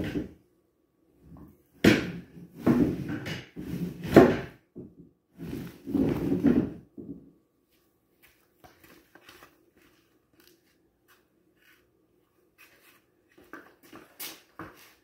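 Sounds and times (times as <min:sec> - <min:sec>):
footsteps on concrete floor: 0:07.6 - 0:15.0.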